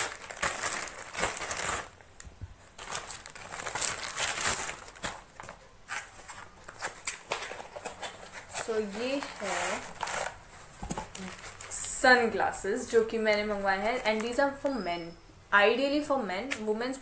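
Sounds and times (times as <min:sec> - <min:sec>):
plastic mailer bag crinkling: 0:00.0 - 0:10.4, 0:11.0 - 0:11.8.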